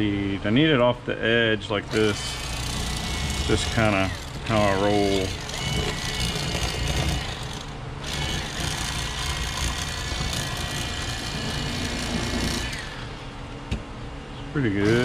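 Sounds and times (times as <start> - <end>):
electric fillet knife whining: 1.9 - 13.1, 14.8 - 15.0.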